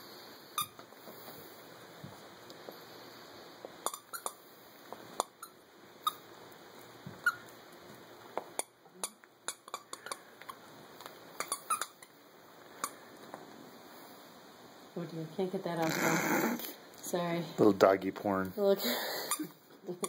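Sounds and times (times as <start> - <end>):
toy squeaks: 11.4 - 12.1.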